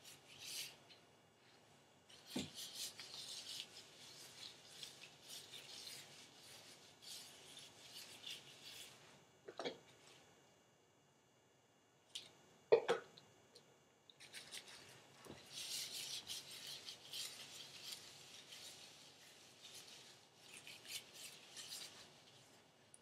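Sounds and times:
gloved hands rubbing hair: 0:00.0 - 0:01.0, 0:02.1 - 0:09.2, 0:14.2 - 0:22.8.

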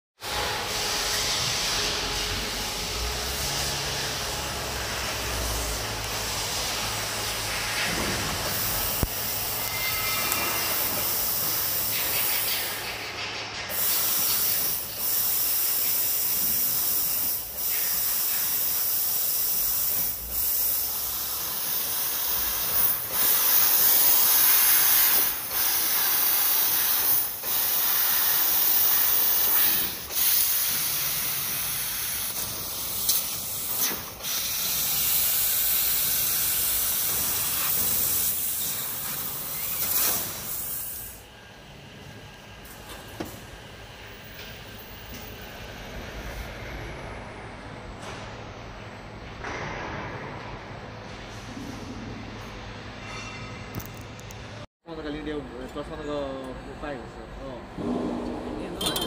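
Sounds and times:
laser cutter gas hiss: 0:01.1 - 0:13.0, 0:13.7 - 0:41.2.

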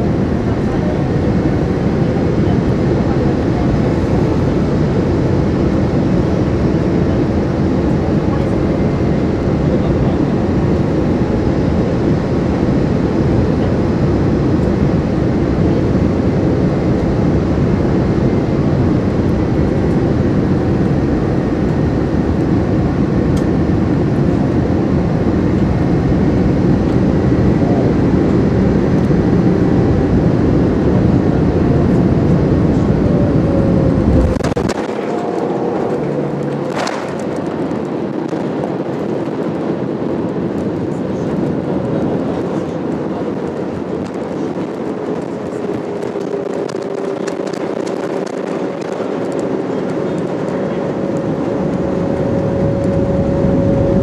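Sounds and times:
jet engine and airflow rush: 0:00.0 - 0:54.0
jet bumping on runway: 0:28.9 - 0:54.0.

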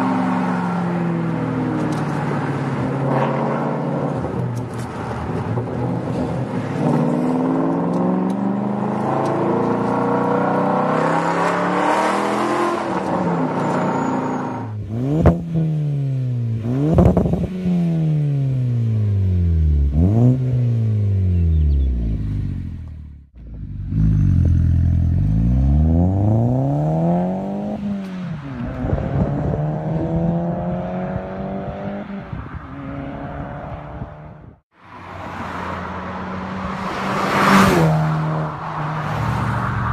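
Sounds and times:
car engine accelerating: 0:05.0 - 0:32.0.

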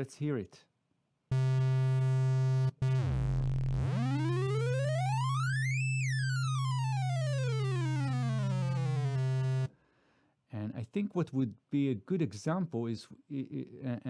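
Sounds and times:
synthesizer low note: 0:01.3 - 0:09.7
synthesizer pitch sweep: 0:01.3 - 0:09.7.

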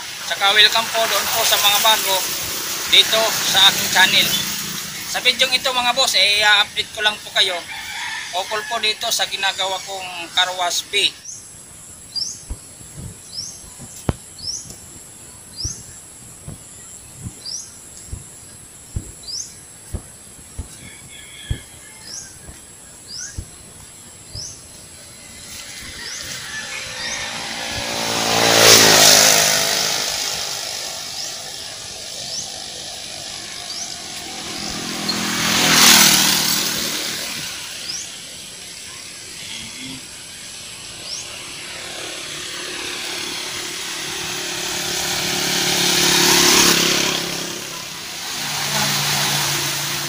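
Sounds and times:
small motorcycles passing by: 0:00.0 - 0:11.3, 0:24.3 - 0:50.0.

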